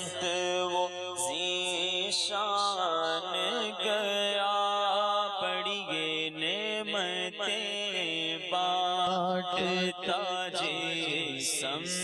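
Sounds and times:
person singing slow devotional song: 0.0s - 12.0s.

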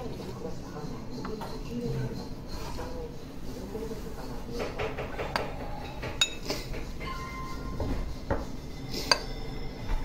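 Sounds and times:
ceramic spoon clinking on plate: 6.2s - 6.5s.

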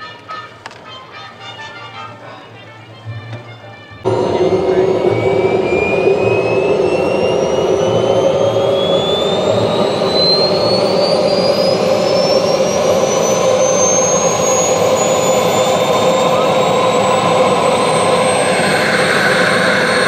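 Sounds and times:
jet turbine spooling up: 4.1s - 20.0s.

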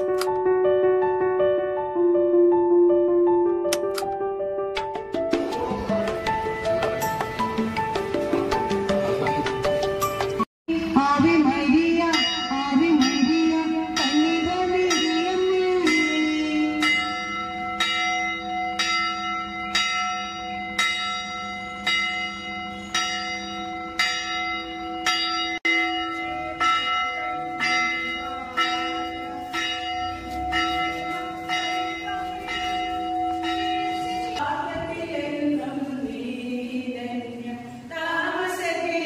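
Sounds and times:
church bell tolling: 11.9s - 34.9s.

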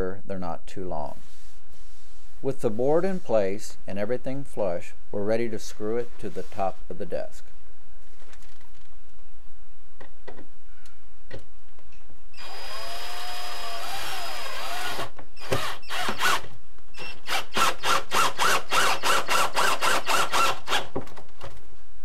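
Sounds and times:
drill driving screws: 12.4s - 20.9s.

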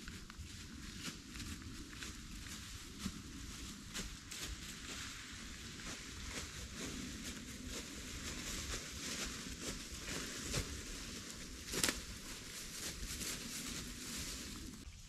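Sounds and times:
footsteps crunching dry leaves: 0.0s - 14.8s.

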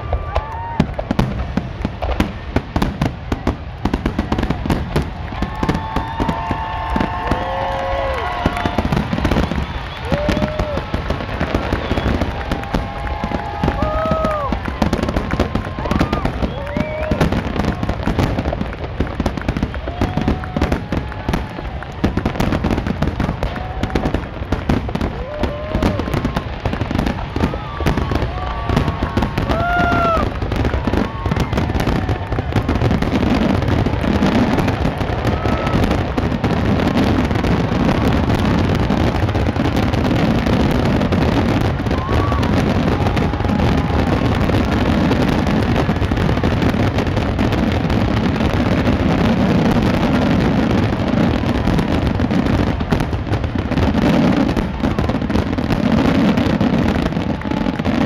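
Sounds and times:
fireworks bursting and crackling: 0.0s - 58.0s.

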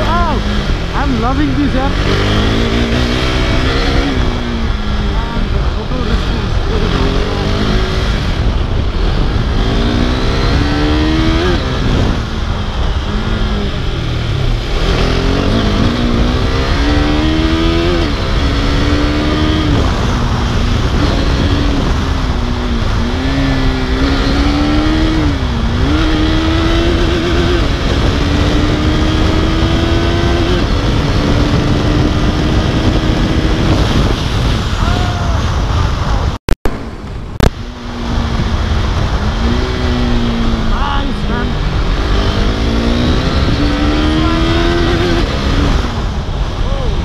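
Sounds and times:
motorcycle engine revving through gears: 0.0s - 34.8s, 36.6s - 46.6s
wind noise on microphone: 0.0s - 47.0s.

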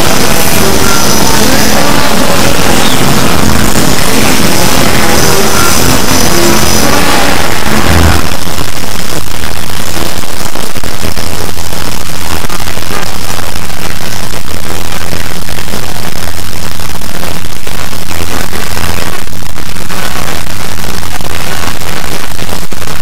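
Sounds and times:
music: 0.0s - 8.8s
distorted jumble of audio tracks: 0.0s - 23.0s.

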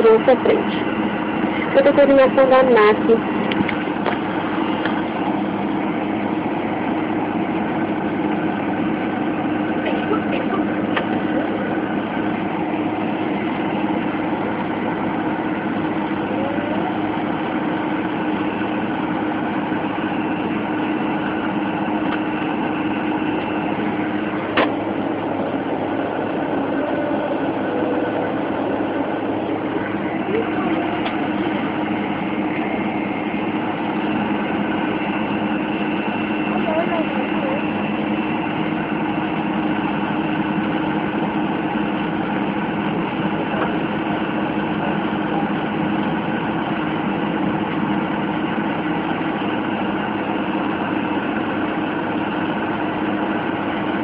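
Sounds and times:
jet engine drone with whine: 0.0s - 54.0s.

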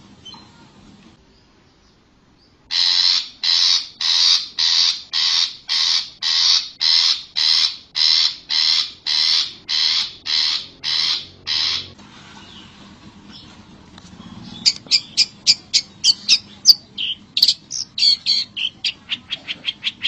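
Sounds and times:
bird giving harsh rasping calls: 2.7s - 12.6s, 14.3s - 20.0s.

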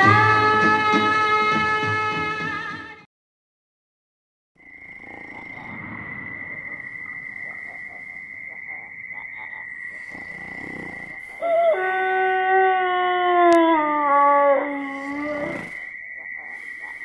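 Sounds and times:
dog howling: 0.0s - 1.9s, 10.3s - 15.9s
high insect trill: 4.6s - 17.0s.

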